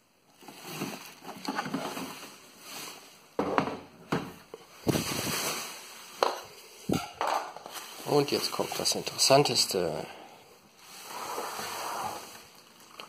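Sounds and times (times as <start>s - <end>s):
bubble wrap rustling: 0.3s - 3.4s, 4.6s - 6.8s, 7.6s - 10.0s.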